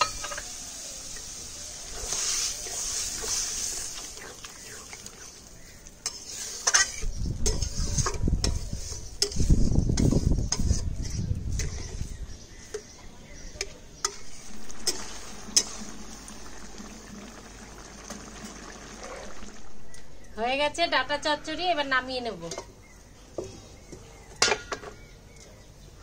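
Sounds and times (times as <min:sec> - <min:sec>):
soft sizzle: 0:00.0 - 0:24.6
spatula scraping a pan: 0:01.9 - 0:05.4, 0:06.0 - 0:12.9, 0:14.0 - 0:16.5.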